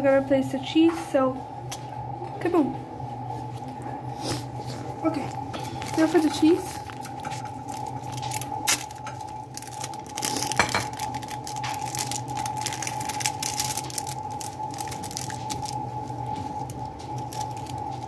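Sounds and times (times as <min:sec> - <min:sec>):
steady hum: 0:00.0 - 0:18.0
plastic wrapper crinkling: 0:05.2 - 0:18.0.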